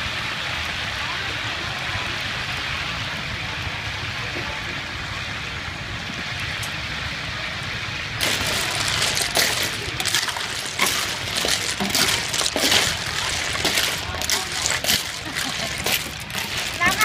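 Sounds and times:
pot boiling and bubbling: 0:00.0 - 0:17.0
shells clattering in pot: 0:08.2 - 0:17.0.

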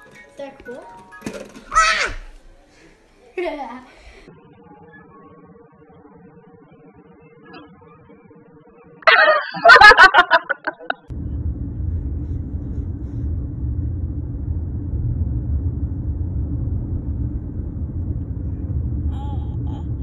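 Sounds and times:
car engine rumble inside cabin: 0:11.1 - 0:20.0.

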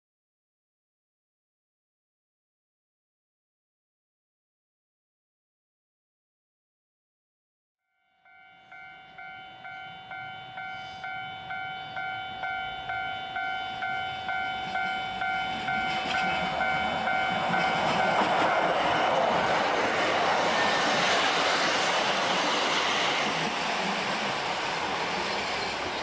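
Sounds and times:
level crossing warning bell: 0:07.9 - 0:20.4
electric train running: 0:08.2 - 0:26.0.

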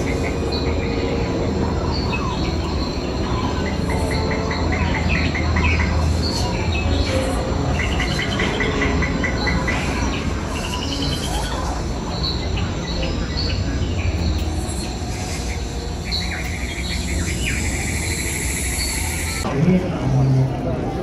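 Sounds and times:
bird calls: 0:00.0 - 0:19.4.

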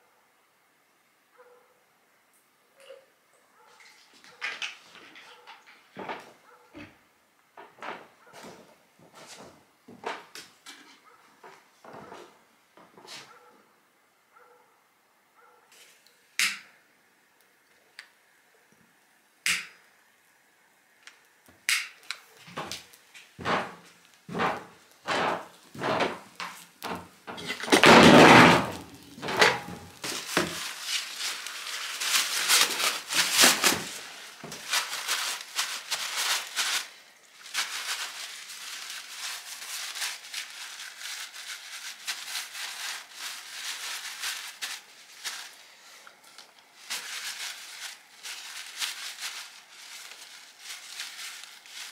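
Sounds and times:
paper towel rustling and crinkling: 0:22.3 - 0:51.9
paper towel ripping: 0:23.5 - 0:45.7, 0:46.4 - 0:51.9.

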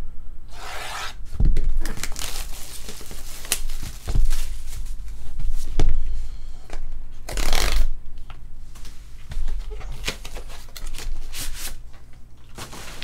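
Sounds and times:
plastic shrink wrap tearing: 0:01.8 - 0:04.8, 0:07.3 - 0:07.9.

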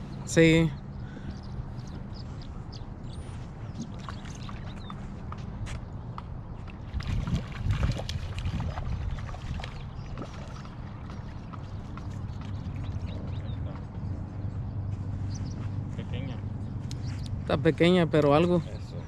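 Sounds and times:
steady low rumble: 0:00.0 - 0:19.0
fish splashing at the surface: 0:06.7 - 0:13.1.

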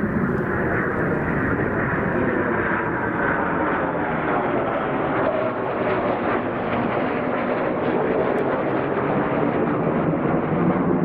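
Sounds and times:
jet fighters passing overhead: 0:00.0 - 0:11.0.

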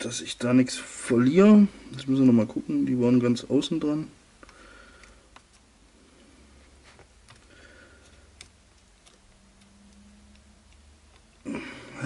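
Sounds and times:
faint low hum: 0:00.0 - 0:12.0
small plastic parts clicking: 0:07.2 - 0:11.4.

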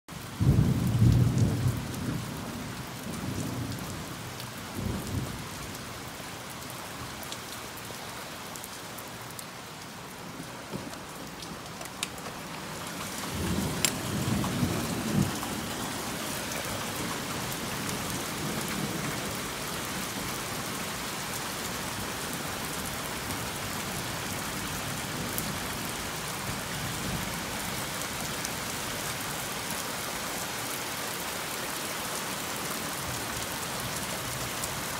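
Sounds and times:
steady rain: 0:00.1 - 0:34.9
thunder rumbling: 0:00.4 - 0:04.0, 0:10.8 - 0:20.0.

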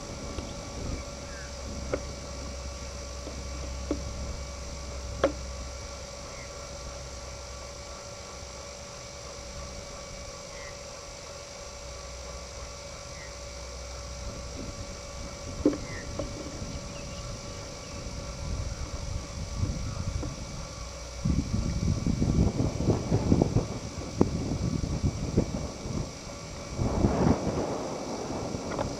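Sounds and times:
steady hum: 0:00.0 - 0:28.9
wind rumbling on microphone: 0:00.0 - 0:28.9
faint bird chirps: 0:06.3 - 0:07.0, 0:09.9 - 0:10.9, 0:15.8 - 0:19.0.

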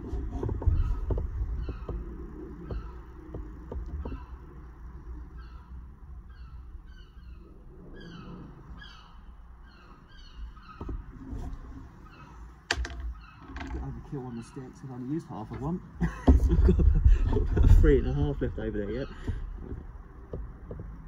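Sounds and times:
bird chirping: 0:00.6 - 0:19.8
torch flame rumble: 0:16.3 - 0:19.3.

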